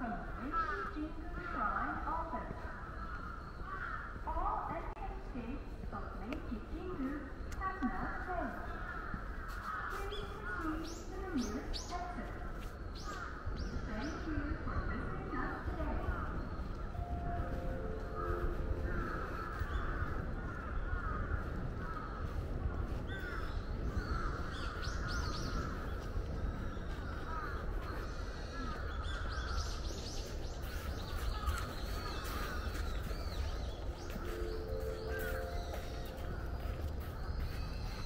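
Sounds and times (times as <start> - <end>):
crows cawing: 0.3 - 1.6, 2.5 - 4.3, 8.0 - 11.0, 13.0 - 13.6, 17.8 - 29.9, 30.7 - 38.0.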